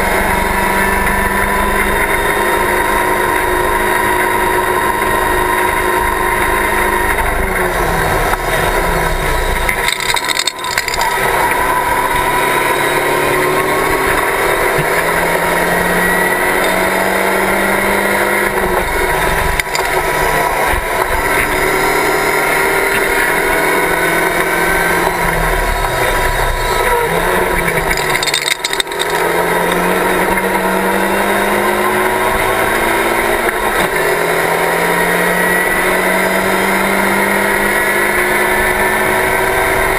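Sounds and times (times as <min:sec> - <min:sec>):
race car engine revving: 0:00.0 - 0:39.9
wind and road noise: 0:00.0 - 0:39.9.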